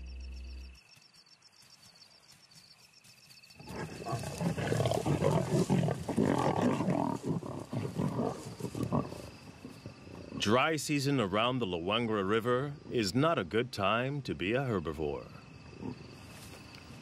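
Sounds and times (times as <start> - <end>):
night insects chirping: 0.0 - 17.0
lions snarling and growling: 3.6 - 10.5.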